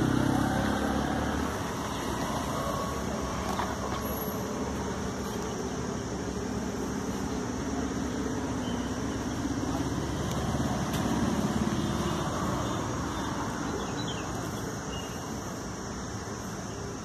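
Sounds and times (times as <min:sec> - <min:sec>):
motor vehicle engine: 0:00.0 - 0:16.1.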